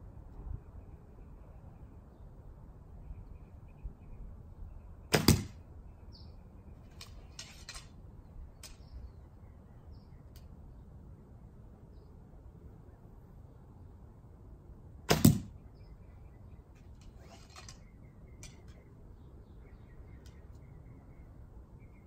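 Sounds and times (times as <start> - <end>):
arrow handling clicks: 6.9 - 8.0, 8.6 - 8.9, 16.7 - 18.8.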